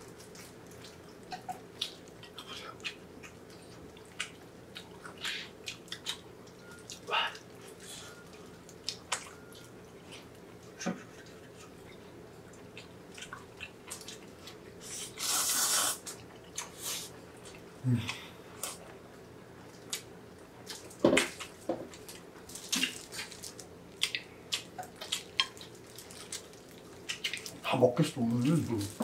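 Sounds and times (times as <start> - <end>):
wet chewing and lip smacks: 0.1 - 10.4, 11.1 - 20.1, 20.7 - 27.6
noodle slurp: 14.8 - 16.1.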